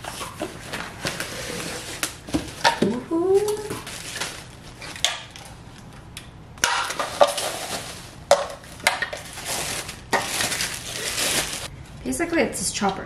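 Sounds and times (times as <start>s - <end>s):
plastic packaging crinkling: 3.4s - 5.5s, 6.6s - 11.7s.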